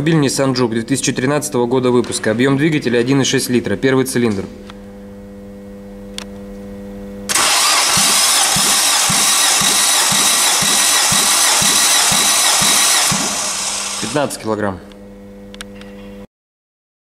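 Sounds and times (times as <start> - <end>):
car engine cranking: 7.3 - 14.2.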